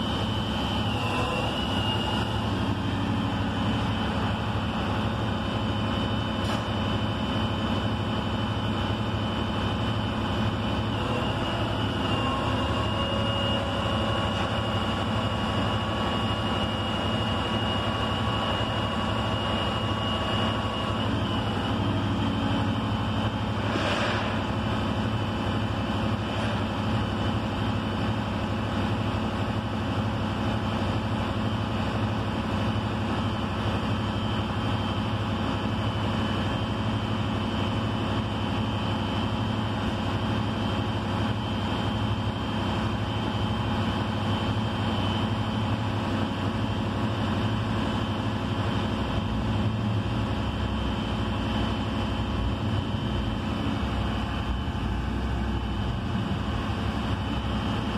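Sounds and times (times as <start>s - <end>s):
truck engine idling: 0.0s - 57.9s.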